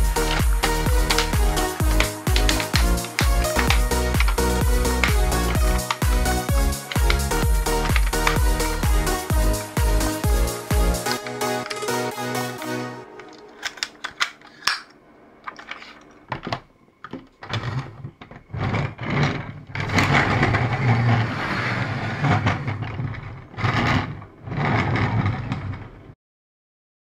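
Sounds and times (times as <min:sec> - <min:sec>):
toy car wheels whirring on table: 0:00.1 - 0:12.2, 0:17.4 - 0:26.2
plastic toy parts clicking: 0:00.2 - 0:06.1, 0:13.2 - 0:18.4.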